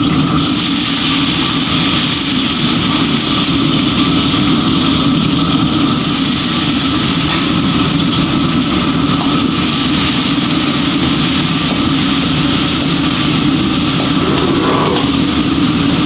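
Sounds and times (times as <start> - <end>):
mechanical drone with low hum: 10.6 - 16.0.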